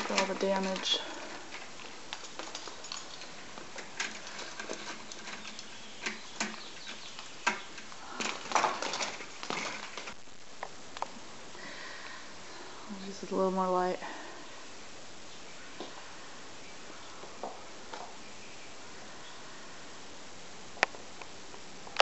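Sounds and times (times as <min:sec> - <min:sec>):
clatter of knocks: 0:00.0 - 0:10.2
light clicks and rustles: 0:00.0 - 0:11.2.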